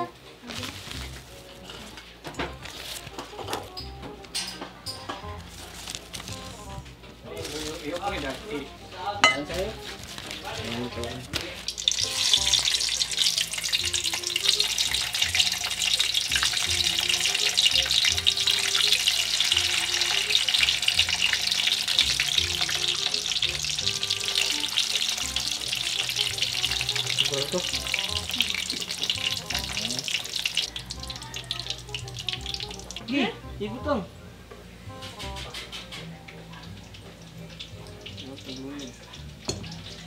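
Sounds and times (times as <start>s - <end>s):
fish frying in oil: 9.2s - 33.2s, 36.3s - 40.0s.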